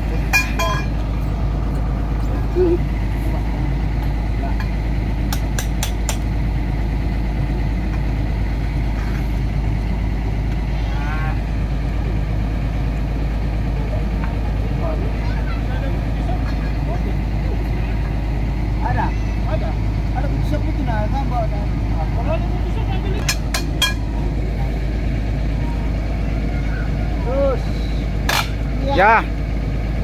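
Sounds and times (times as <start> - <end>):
engine idling rumble: 0.0 - 30.0
hammer striking steel: 0.3 - 1.0, 5.3 - 6.3, 23.2 - 24.1.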